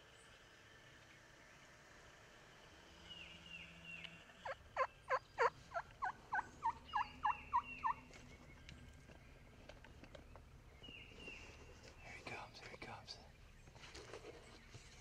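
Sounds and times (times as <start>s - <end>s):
turkey yelping: 4.4s - 8.0s.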